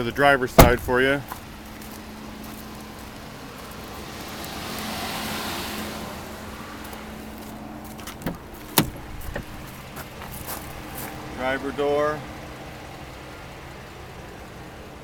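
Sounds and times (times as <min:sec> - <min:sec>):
passing traffic: 0:00.0 - 0:15.0
car door latch click: 0:08.0 - 0:09.6.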